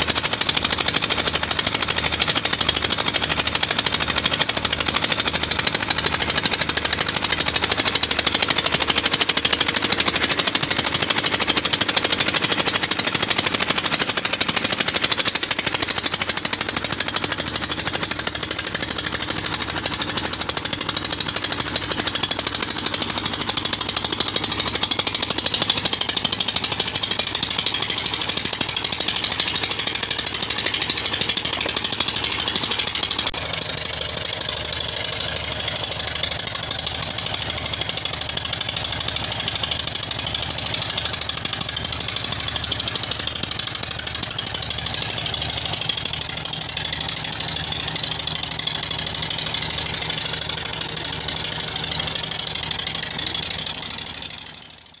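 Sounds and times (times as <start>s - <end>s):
flour mill high hiss: 0.0s - 54.6s
diesel engine thudding: 0.0s - 54.8s.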